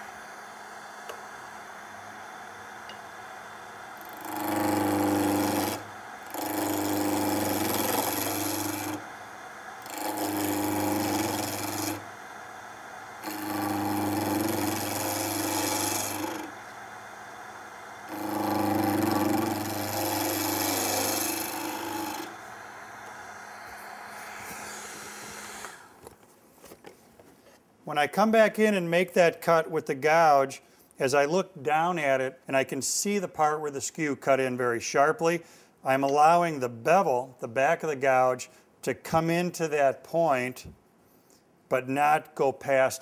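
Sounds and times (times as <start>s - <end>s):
gouge cutting wood on a lathe: 0.2s - 25.9s.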